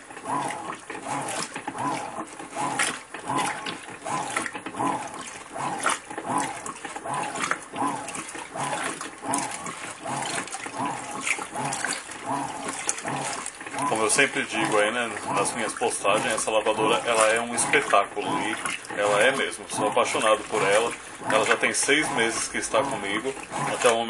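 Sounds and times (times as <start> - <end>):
washing machine agitating: 0.0 - 24.0
water sloshing: 0.0 - 24.0.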